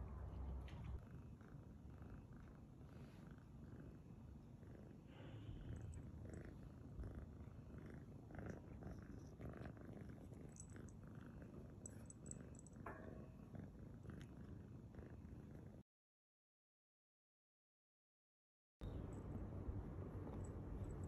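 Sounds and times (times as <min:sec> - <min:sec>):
kitten purring: 0:00.2 - 0:15.8.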